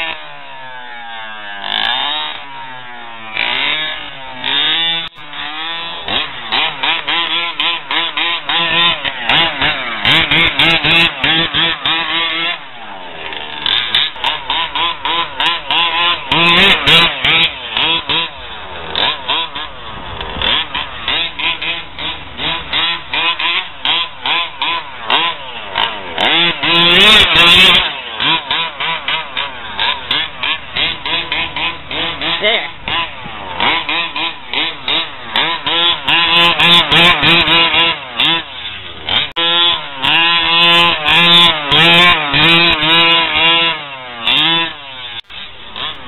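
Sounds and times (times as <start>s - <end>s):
two-stroke engine revving: 0.0s - 46.0s.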